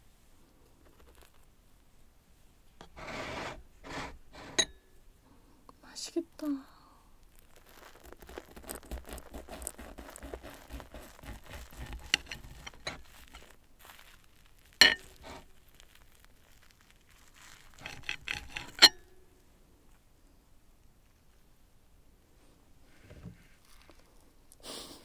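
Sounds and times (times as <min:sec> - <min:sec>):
knife and fork scraping plate: 0:02.9 - 0:04.7, 0:09.6 - 0:13.4, 0:14.8 - 0:15.4, 0:17.8 - 0:19.0.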